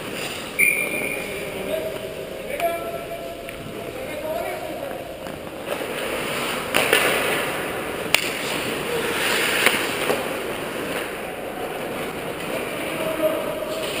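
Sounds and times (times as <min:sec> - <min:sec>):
skates scraping on ice: 0:00.0 - 0:00.6, 0:03.6 - 0:14.0
hockey sticks and puck clacks: 0:01.8 - 0:14.0.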